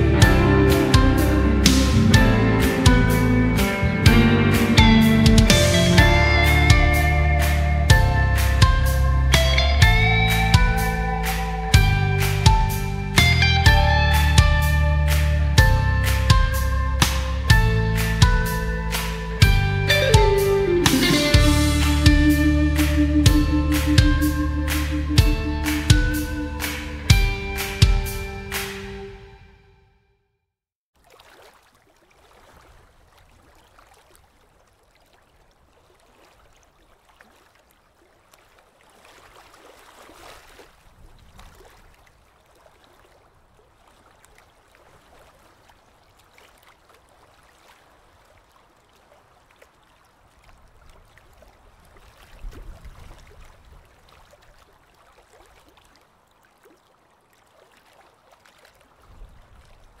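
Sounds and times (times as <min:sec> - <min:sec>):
faint trickling water: 0:31.0 - 1:00.0.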